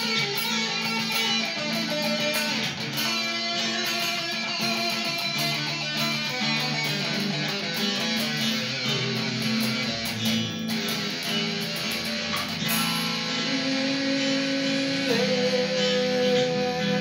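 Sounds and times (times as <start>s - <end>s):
electric guitar playing rock: 0.0s - 17.0s.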